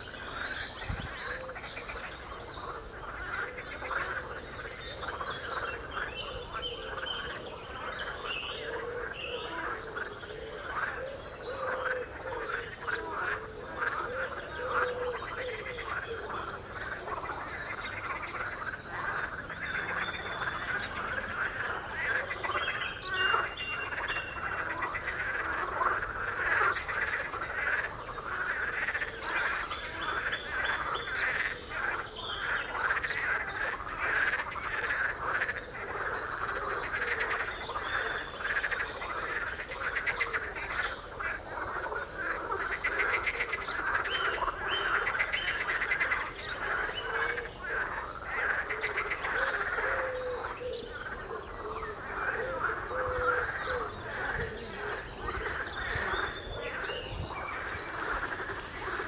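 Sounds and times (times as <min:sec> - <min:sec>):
frogs croaking: 0:00.0 - 0:59.0
songbirds singing: 0:00.0 - 0:59.0.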